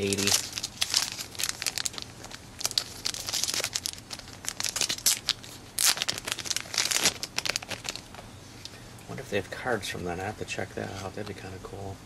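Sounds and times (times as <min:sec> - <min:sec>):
trading cards rustling: 0:00.0 - 0:08.2.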